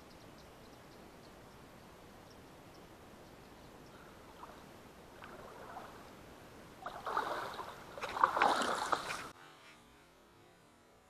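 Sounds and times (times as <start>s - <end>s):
water splashing around boat: 4.2s - 6.2s, 6.8s - 9.4s.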